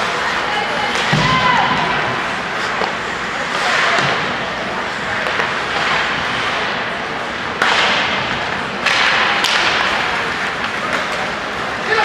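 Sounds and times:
skates scraping on ice: 1.8 - 12.0
hockey sticks cracking on puck: 2.6 - 12.0.

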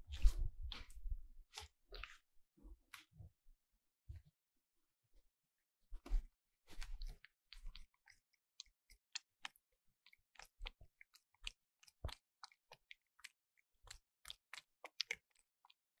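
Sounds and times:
cat lapping water: 1.5 - 2.2, 6.8 - 16.0.

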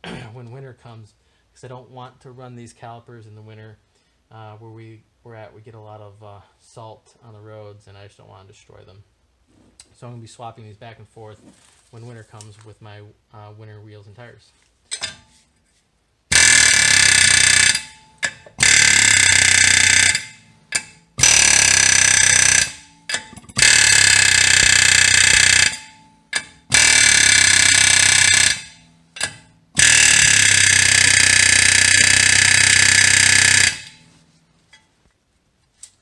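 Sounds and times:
air hammer pounding metal: 16.3 - 34.2.

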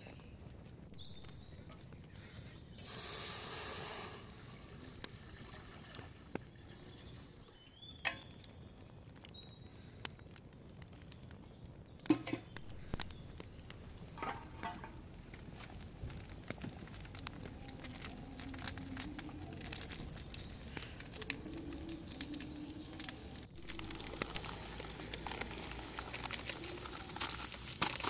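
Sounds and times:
birds chirping: 0.0 - 3.3, 4.0 - 27.8
water splashing into a pot: 16.2 - 28.0.

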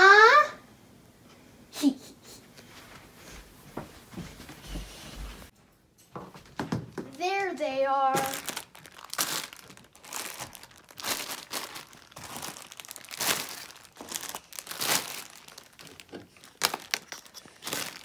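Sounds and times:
plastic packs crinkling: 7.1 - 18.0.

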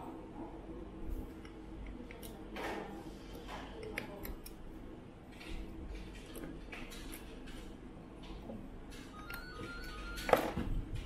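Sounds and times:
tweezers and screws tapping acrylic: 3.8 - 4.6.

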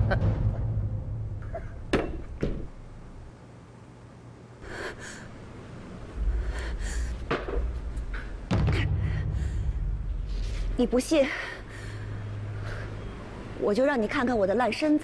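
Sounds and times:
low rumble: 6.1 - 12.6
woman breathing and gasping: 6.2 - 7.3.

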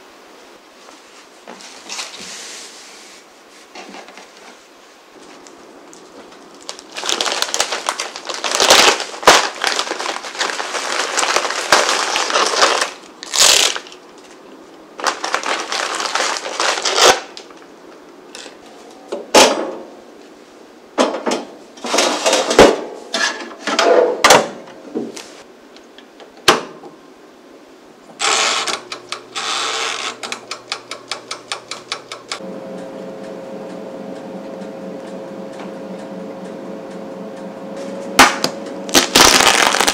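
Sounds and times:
oven humming: 28.0 - 39.9.

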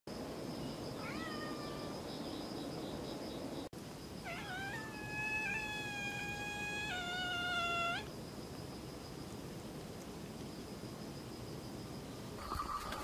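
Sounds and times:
kitten meowing: 1.0 - 1.9, 4.2 - 8.1.

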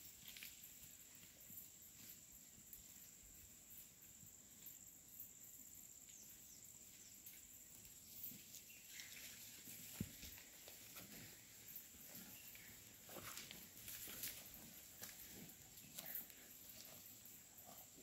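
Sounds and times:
footsteps on forest floor: 8.4 - 17.1.

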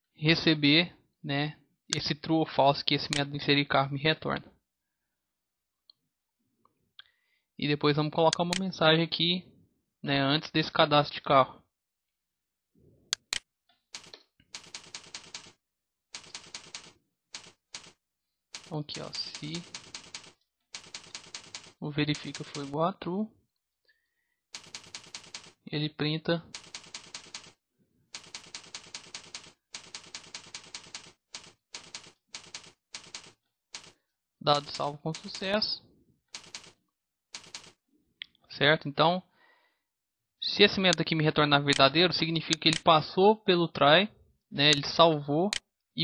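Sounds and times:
typing on computer keyboard: 14.0 - 15.6, 16.2 - 18.0, 18.6 - 22.8, 24.6 - 25.6, 26.5 - 27.6, 28.2 - 35.6, 36.4 - 36.8, 37.4 - 37.8.

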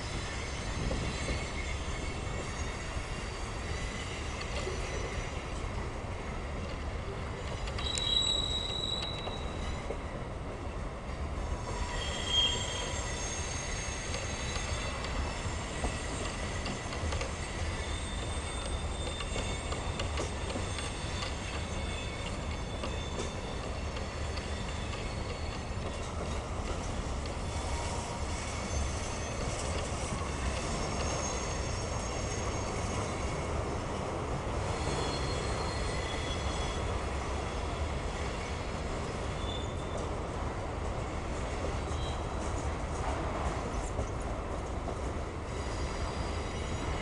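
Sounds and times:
high wheel squeals: 0.0 - 5.6, 7.8 - 10.0, 11.5 - 33.8, 34.6 - 38.7, 39.3 - 40.1, 41.8 - 42.5, 45.5 - 47.0
train wheels rumbling on rail: 0.0 - 47.0.

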